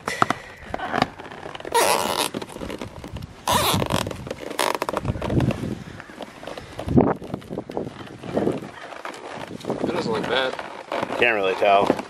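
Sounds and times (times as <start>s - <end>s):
zip ties zipping: 1.7s - 5.2s.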